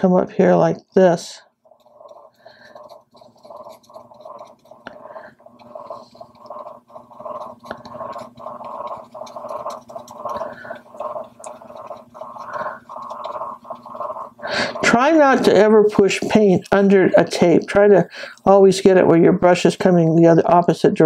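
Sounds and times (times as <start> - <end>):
paintbrush scrubbing canvas: 1.2 - 18.0.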